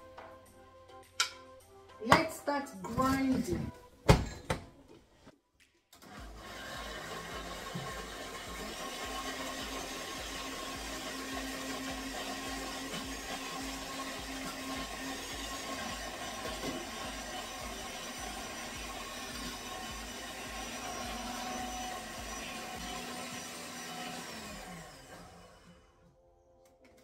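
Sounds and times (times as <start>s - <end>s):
blender grinding: 6.0s - 26.0s.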